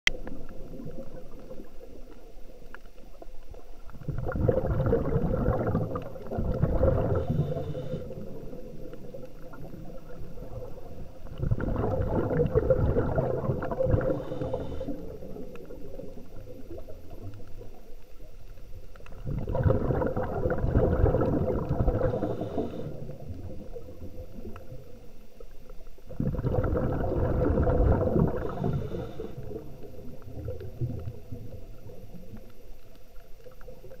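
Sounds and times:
exhaled bubbles gurgling underwater: 0:00.1 - 0:34.0
diver breathing through regulator: 0:06.7 - 0:08.6, 0:13.8 - 0:15.4, 0:21.9 - 0:23.3, 0:28.3 - 0:29.8.

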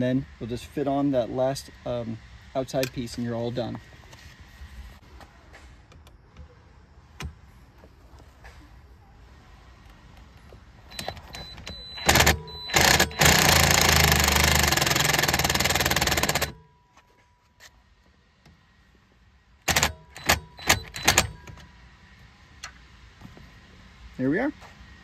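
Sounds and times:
impact driver driving a screw: 0:10.9 - 0:16.6, 0:19.7 - 0:21.6.

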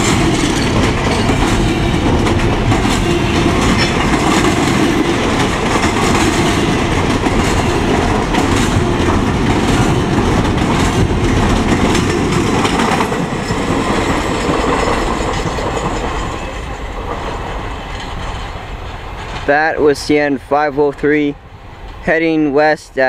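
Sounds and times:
freight train rolling past: 0:00.0 - 0:23.0.

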